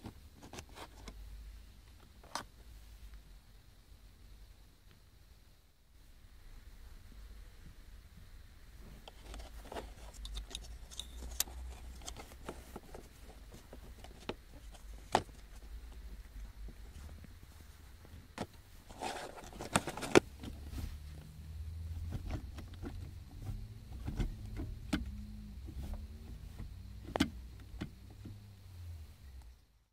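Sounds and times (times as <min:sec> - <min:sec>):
plastic clatter: 0:09.0 - 0:15.7, 0:18.4 - 0:20.6
gear lever rumble: 0:09.0 - 0:17.1, 0:18.3 - 0:28.5.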